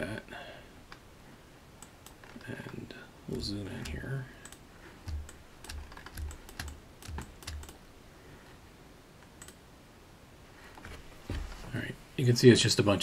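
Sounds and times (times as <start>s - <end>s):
keyboard and mouse clicks: 3.8s - 7.8s, 9.2s - 9.6s.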